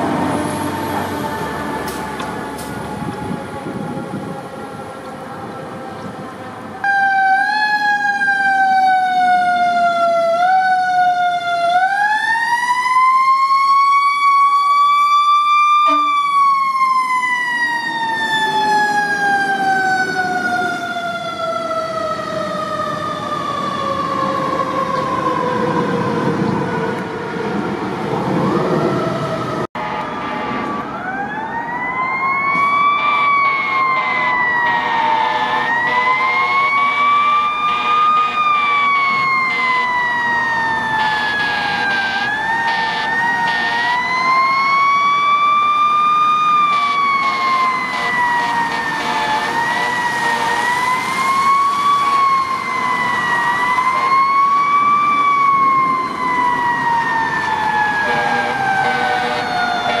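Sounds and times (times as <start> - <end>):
fire truck siren wailing: 0.0 - 60.0.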